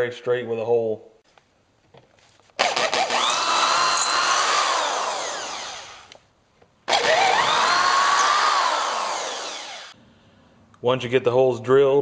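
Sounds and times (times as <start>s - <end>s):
electric drill whining: 2.6s - 6.2s, 6.9s - 10.0s.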